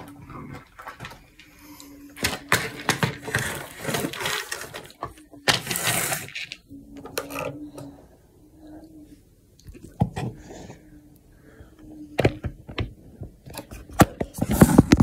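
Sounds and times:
small objects rummaged through: 0:00.0 - 0:06.6
faint steady hum: 0:00.0 - 0:15.0.

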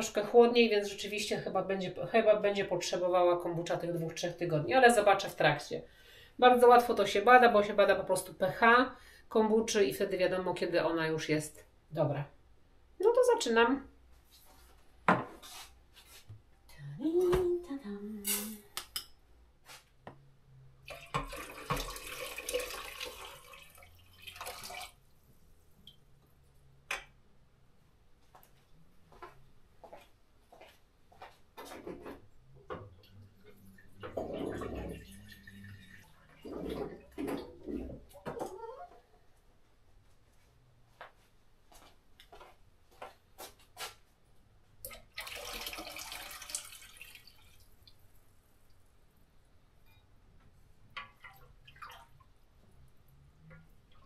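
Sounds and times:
water running: 0:20.8 - 0:26.1, 0:33.0 - 0:38.8, 0:44.8 - 0:48.0, 0:50.9 - 0:52.9.

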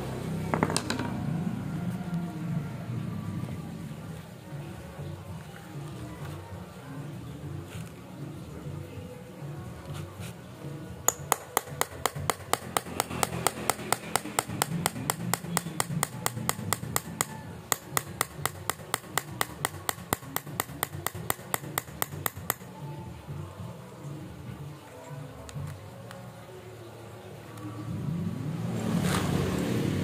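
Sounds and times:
rapid sharp metallic clicks: 0:11.1 - 0:22.7.

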